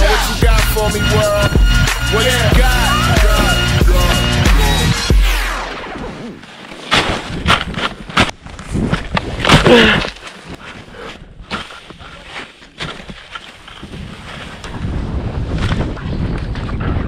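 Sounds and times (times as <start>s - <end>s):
person yelling: 2.1s - 4.8s
skis scraping on snow: 11.7s - 15.5s
wind rushing on microphone: 13.8s - 17.0s.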